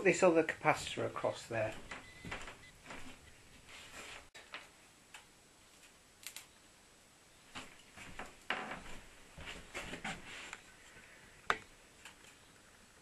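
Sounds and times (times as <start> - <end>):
rustling of hands with wires: 1.7 - 6.5, 7.5 - 13.0.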